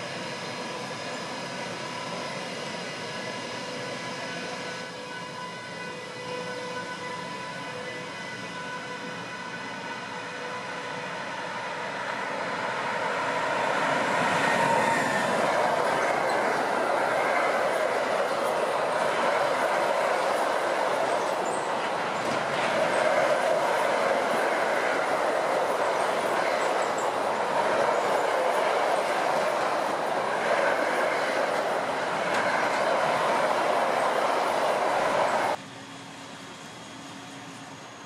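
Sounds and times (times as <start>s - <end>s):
freight train rolling past: 0.0s - 38.0s.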